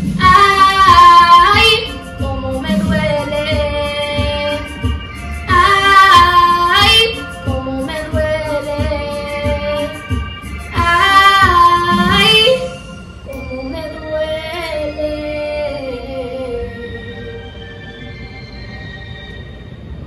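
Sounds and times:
steady music beat: 0.0s - 13.5s
woman singing: 0.2s - 4.8s, 5.5s - 12.7s, 13.3s - 16.9s.

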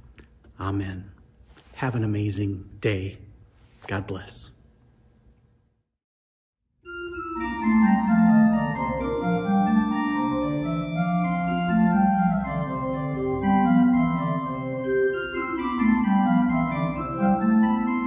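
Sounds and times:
church organ chords: 6.8s - 18.0s.

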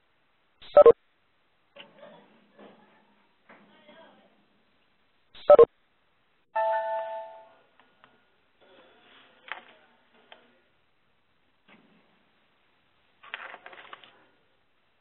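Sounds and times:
two-tone chime: 6.6s - 7.6s.

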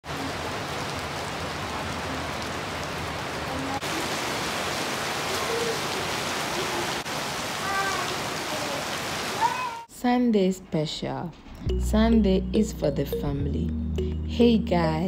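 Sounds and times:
rain on metal roof and paving: 0.0s - 9.9s.

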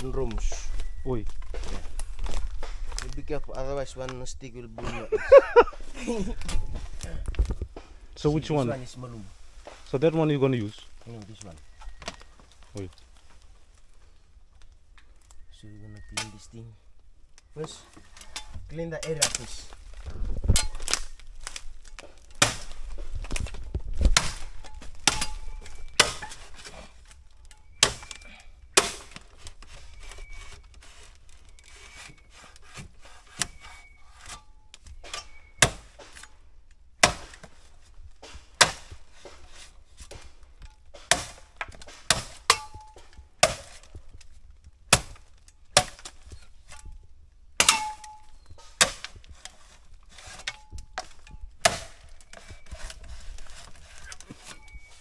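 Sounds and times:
machete chopping bamboo: 20.5s - 26.9s, 27.6s - 29.4s, 35.0s - 36.3s, 37.0s - 37.6s, 38.2s - 44.0s, 44.9s - 46.8s, 47.6s - 54.8s.

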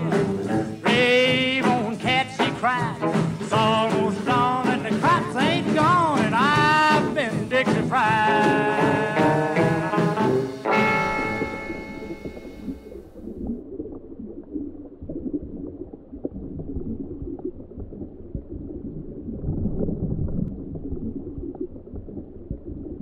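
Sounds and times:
brass chord: 9.4s - 12.6s
underwater rumble and gurgle: 11.4s - 23.0s.

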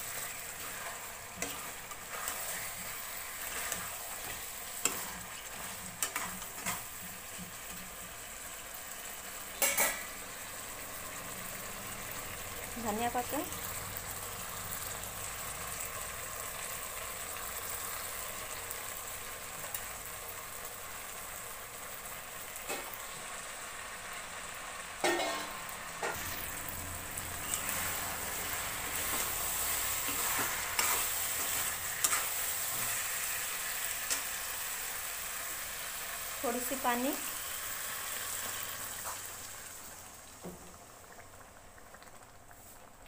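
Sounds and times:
metal spatula scraping pan: 0.0s - 7.0s, 25.0s - 26.4s, 27.4s - 33.1s
curry sizzling in a pan: 0.0s - 43.0s.

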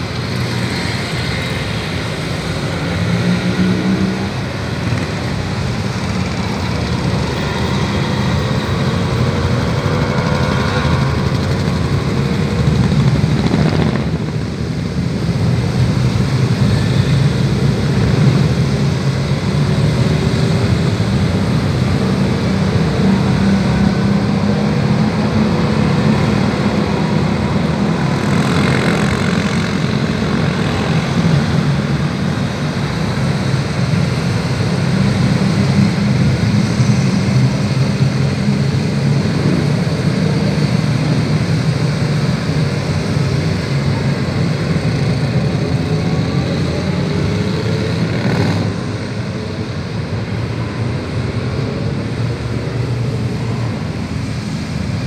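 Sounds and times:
motorcycles riding past: 0.0s - 42.0s, 42.8s - 55.0s.

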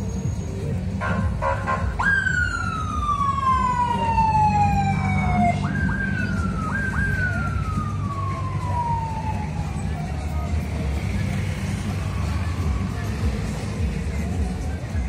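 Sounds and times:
electronic siren-like whistle: 1.6s - 9.9s.

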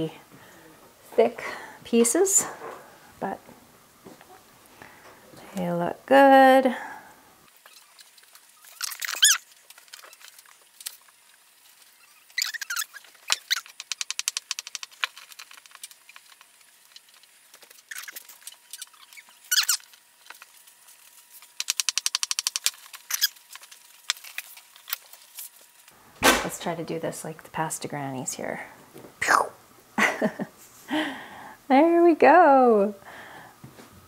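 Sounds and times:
short squeaks: 7.6s - 10.2s, 11.8s - 14.0s, 17.8s - 20.0s, 23.1s - 23.4s
pasta machine crank clicking: 12.4s - 16.3s, 21.5s - 23.4s.

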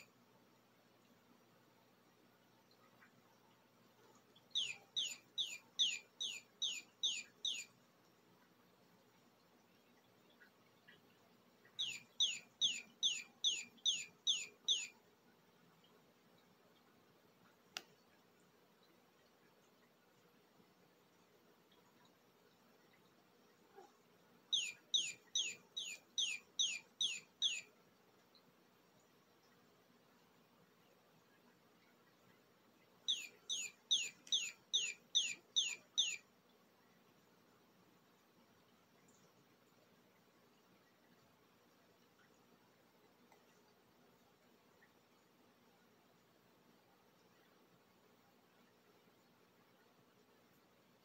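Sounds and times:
toy bird chirping: 4.6s - 7.7s, 11.8s - 15.0s, 24.5s - 27.7s, 33.1s - 36.2s.

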